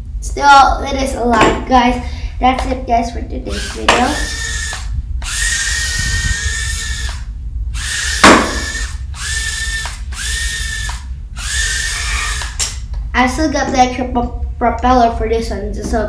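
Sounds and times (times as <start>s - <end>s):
toy drone motors whining: 3.5s - 12.7s
sharp knock: 8.2s - 8.7s.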